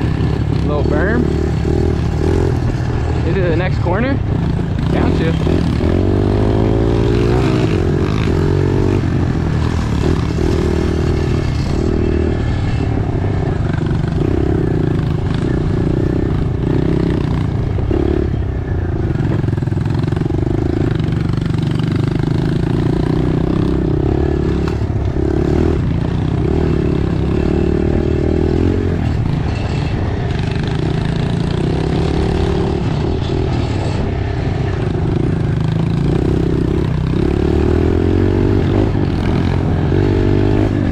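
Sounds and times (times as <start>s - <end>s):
bike rattling: 0.0s - 40.9s
motorbike engine revving: 0.0s - 40.9s.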